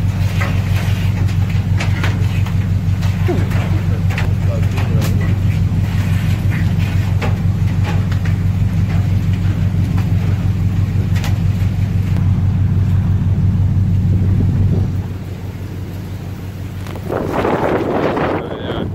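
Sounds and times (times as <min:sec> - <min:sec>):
heavy rain: 0:00.0 - 0:18.9
low rumble and hum: 0:00.0 - 0:18.9
wind: 0:00.0 - 0:18.9.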